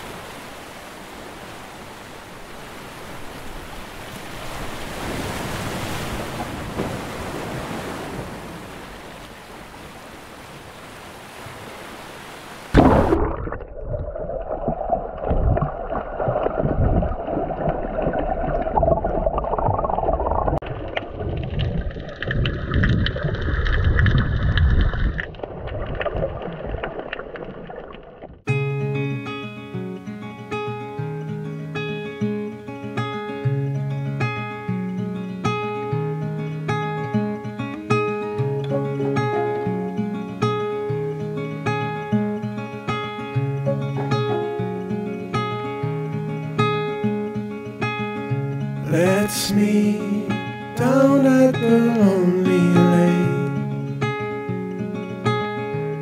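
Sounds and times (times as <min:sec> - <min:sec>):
muffled underwater sloshing: 0:00.0 - 0:28.5
loud splash: 0:04.2 - 0:09.2, 0:12.7 - 0:28.4.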